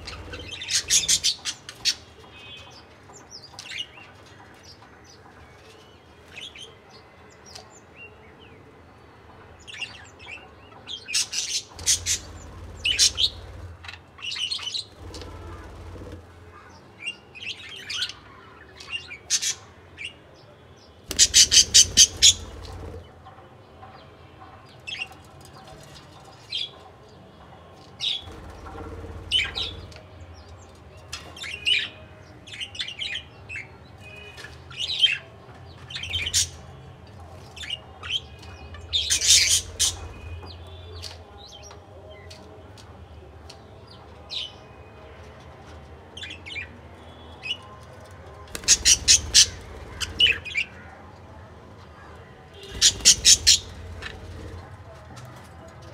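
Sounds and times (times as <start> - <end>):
budgerigars chirping and squawking: 0.0 - 2.5, 11.1 - 14.0, 21.1 - 23.0, 28.3 - 30.0, 38.9 - 40.7, 48.5 - 50.6, 52.6 - 54.5.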